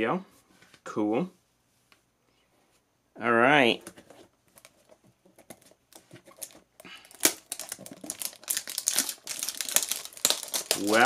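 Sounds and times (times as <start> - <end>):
plastic wrap crinkling: 4.5 - 11.0.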